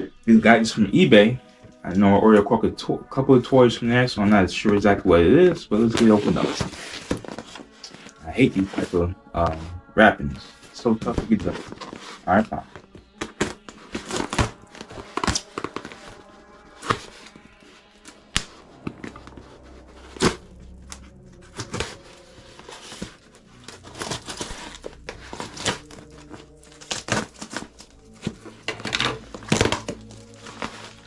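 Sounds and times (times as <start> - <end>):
plastic crinkling and tearing: 11.0 - 31.0
scissors cutting packing tape: 13.2 - 16.2, 21.5 - 31.0.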